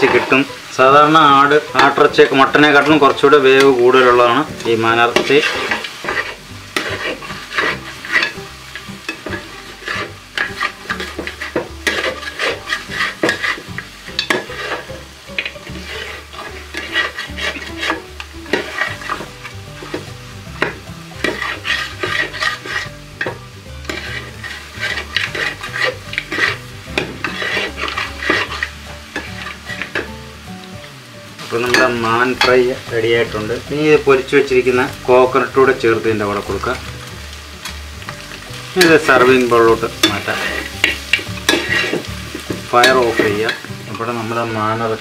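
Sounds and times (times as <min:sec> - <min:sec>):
metal spatula scraping pan: 0:00.0 - 0:00.5, 0:01.5 - 0:30.2, 0:38.8 - 0:43.7
meat sizzling in oil: 0:00.0 - 0:45.0.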